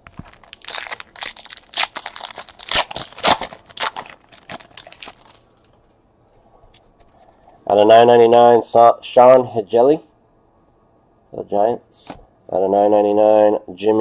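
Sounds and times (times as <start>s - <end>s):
foil wrapper tearing and crinkling: 0.0s - 5.7s.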